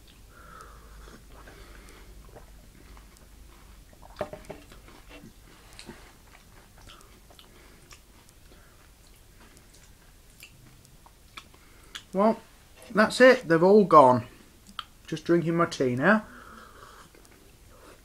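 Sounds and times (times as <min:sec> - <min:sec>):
person chewing crunchy candy: 0:01.0 - 0:12.2.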